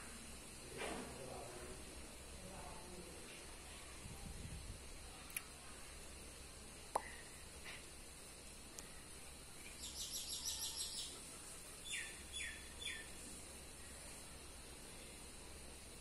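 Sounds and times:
background hiss: 0.0 - 16.0
small bird chattering: 9.6 - 13.1.

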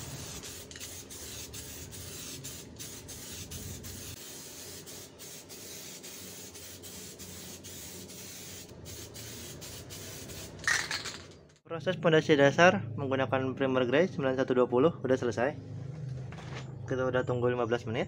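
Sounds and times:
aerosol spray can hissing: 0.0 - 10.8.

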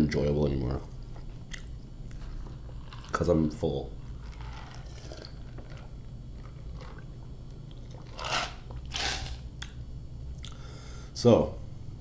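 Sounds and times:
noisy sips from paper cup: 4.2 - 7.1.

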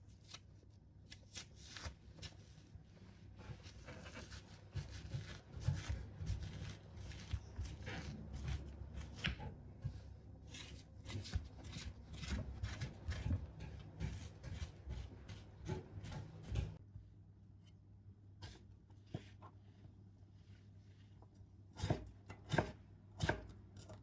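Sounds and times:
spoon scraping melon: 3.9 - 16.8.

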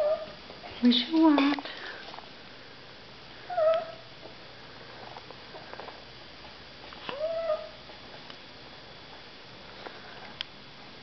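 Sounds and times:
small dog whining: 0.0 - 0.4, 3.5 - 4.1, 7.1 - 7.8.

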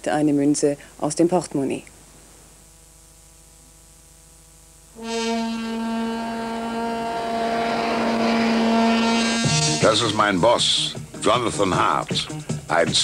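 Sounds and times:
faint hiss: 0.0 - 13.0
long brass-like note: 4.9 - 10.3
jet aircraft taking off: 5.7 - 9.8.

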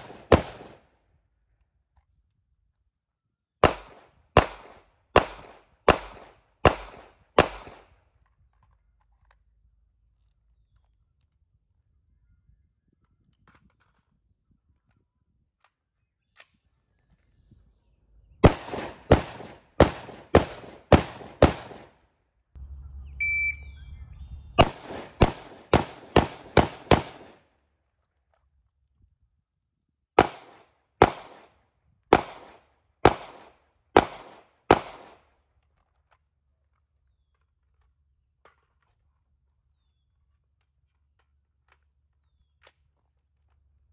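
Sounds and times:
gunshots with echo: 18.4 - 22.0, 24.6 - 27.4
shot timer beep: 23.2 - 23.8.

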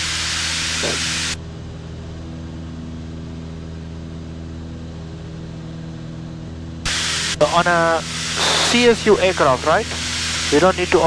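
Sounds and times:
loud hiss: 0.0 - 1.4, 6.9 - 11.0
propeller engines droning: 0.0 - 11.0.

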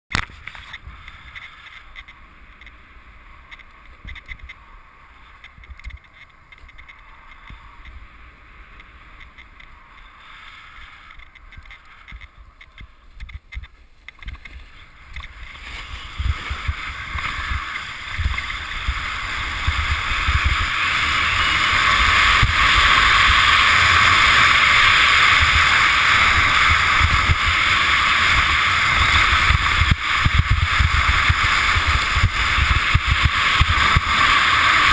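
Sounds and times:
snowboard scraping over snow: 0.2 - 34.9
wind buffeting: 11.3 - 34.9.

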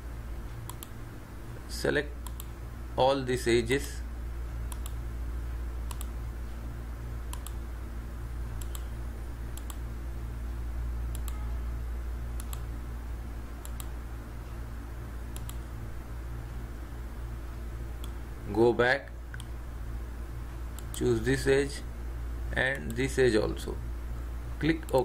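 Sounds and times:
low electrical hum: 0.0 - 25.0
computer mouse clicking: 0.6 - 1.0, 2.2 - 2.6, 4.7 - 5.0, 5.9 - 6.2, 7.3 - 7.6, 8.6 - 8.9, 9.5 - 9.8, 11.1 - 11.4, 12.4 - 12.7, 13.6 - 14.0, 15.3 - 15.7, 18.0 - 18.2, 19.3 - 19.6, 20.7 - 21.0.

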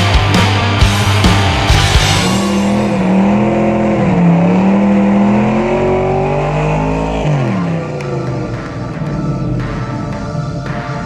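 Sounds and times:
car engine revving high: 1.0 - 10.8.

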